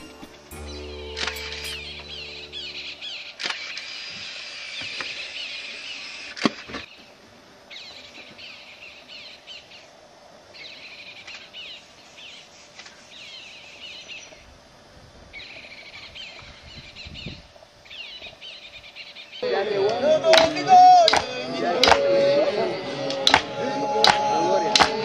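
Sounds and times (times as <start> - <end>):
birds chirping: 0.0 - 4.1.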